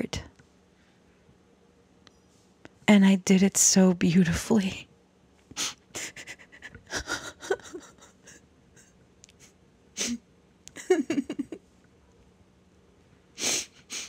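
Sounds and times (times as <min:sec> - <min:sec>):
woman speaking: 0:00.0 - 0:00.3, 0:02.8 - 0:04.9
woman crying: 0:05.6 - 0:08.9, 0:10.0 - 0:11.6.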